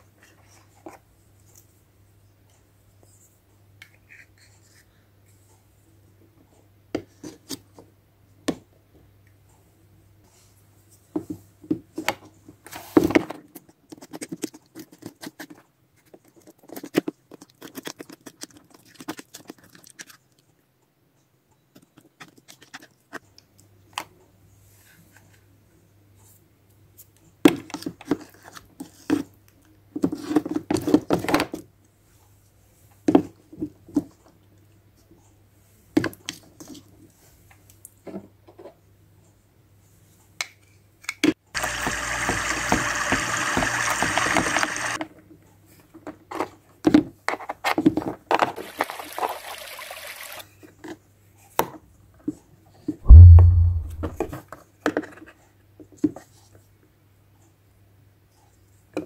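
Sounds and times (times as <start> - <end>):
heavy low thump: 53.1 - 54.3.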